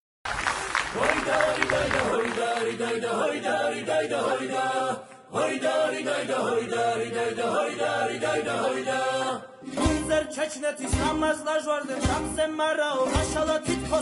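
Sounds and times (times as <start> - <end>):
choir singing: 0.9 - 11.2.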